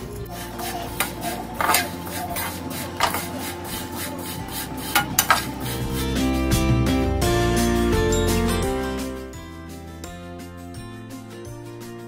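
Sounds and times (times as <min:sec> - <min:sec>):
metal spatula scraping a pan: 0:00.0 - 0:06.3
background music: 0:00.0 - 0:12.0
spatula knocking on pan: 0:01.0 - 0:03.4, 0:04.9 - 0:05.6.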